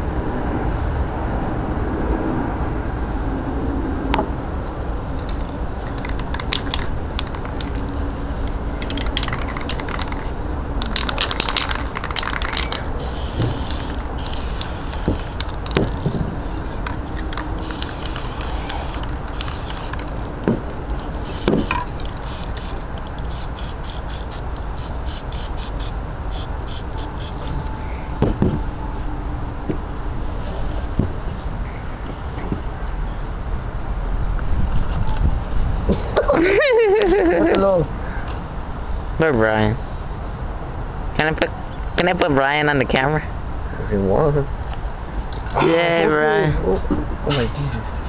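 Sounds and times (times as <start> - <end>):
steady low rumble: 0.0 - 36.1
spray paint can hissing: 5.3 - 16.0, 16.9 - 20.4, 21.2 - 27.5.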